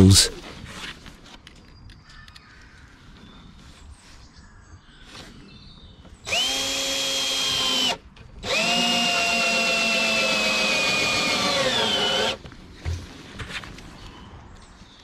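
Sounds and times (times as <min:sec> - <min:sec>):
cordless drill drilling into wood: 0:06.2 - 0:12.4.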